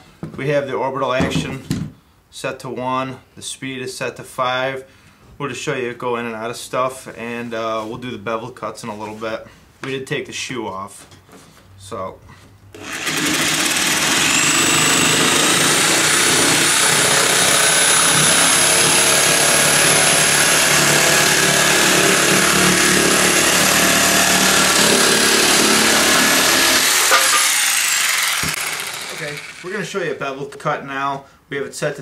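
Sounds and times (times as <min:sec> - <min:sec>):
jigsaw cutting wood: 0:12.8 - 0:29.8
motor winding down: 0:12.8 - 0:29.8.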